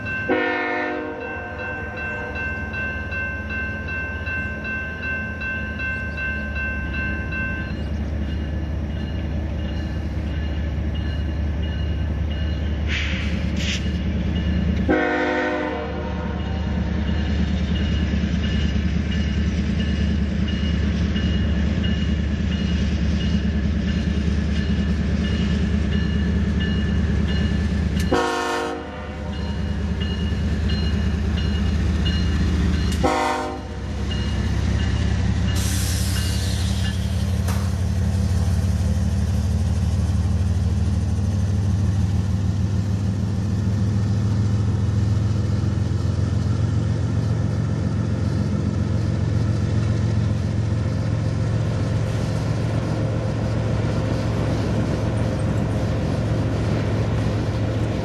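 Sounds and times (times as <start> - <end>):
crossing bell dinging: 0.0 - 12.9, 13.9 - 39.0
freight cars rumbling over rails: 0.0 - 58.0
locomotive air horn blasts: 0.3 - 2.4, 14.9 - 16.5, 28.1 - 29.4, 33.0 - 33.9.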